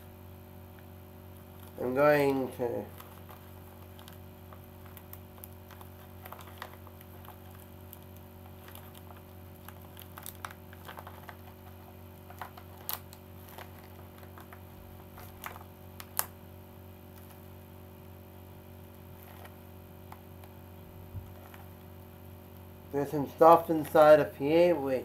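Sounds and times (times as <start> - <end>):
steady low hum: 0.0 - 25.0
plastic crinkling: 1.3 - 16.4, 17.1 - 17.6, 18.8 - 22.0, 23.3 - 24.3
small clicks and ticks: 2.9 - 14.6.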